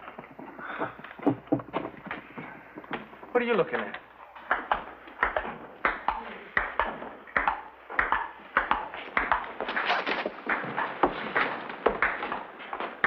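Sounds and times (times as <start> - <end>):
ping-pong ball clicking: 4.5 - 9.5.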